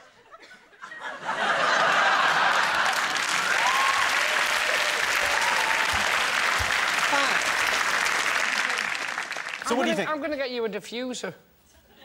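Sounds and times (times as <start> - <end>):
studio audience applauding: 1.6 - 10.1.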